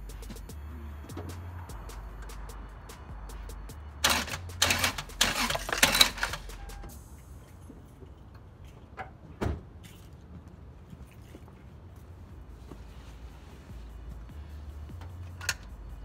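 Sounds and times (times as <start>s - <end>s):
clattering and rattling: 4.0s - 6.8s.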